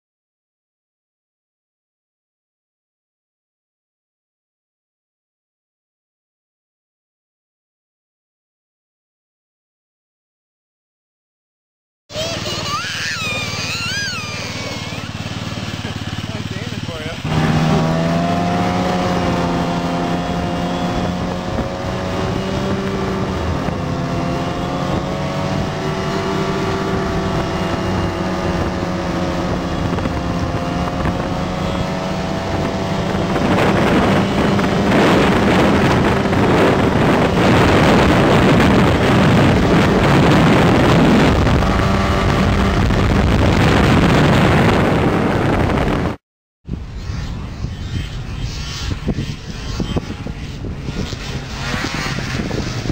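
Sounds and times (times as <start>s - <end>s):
snowmobile engine running: 12.1s - 52.9s
wind on microphone: 12.2s - 52.9s.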